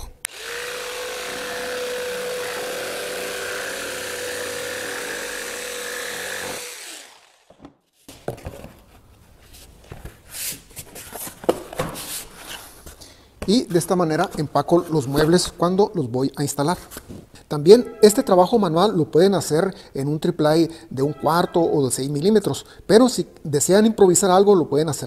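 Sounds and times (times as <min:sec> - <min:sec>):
jigsaw cutting cardboard: 0:00.3 - 0:07.7.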